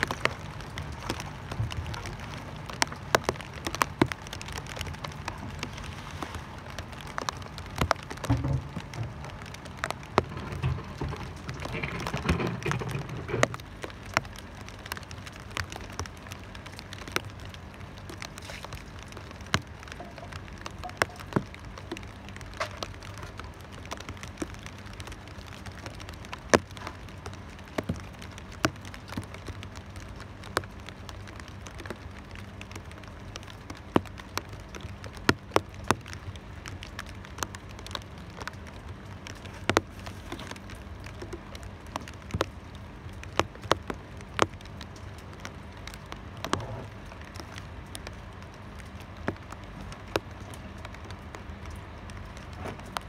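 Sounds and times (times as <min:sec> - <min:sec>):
rain hiss: 0:00.0 - 0:53.0
raindrops tapping hard surface: 0:00.0 - 0:53.0.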